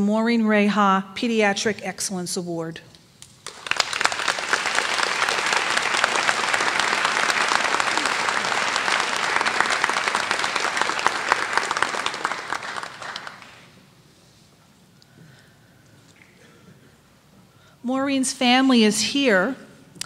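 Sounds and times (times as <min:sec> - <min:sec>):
audience applauding: 0:03.4 - 0:13.8.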